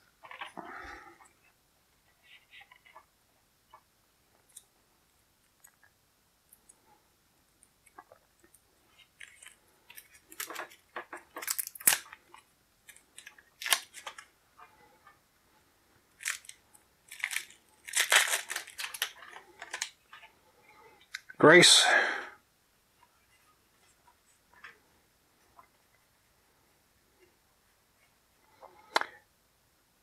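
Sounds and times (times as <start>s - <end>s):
cellophane wrap tearing and crinkling: 9.2s - 14.2s, 16.1s - 20.0s.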